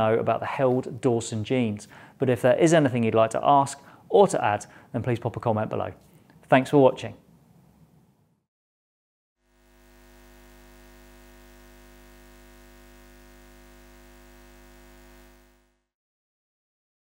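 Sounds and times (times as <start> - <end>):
electronic drone: 9.5 - 15.9.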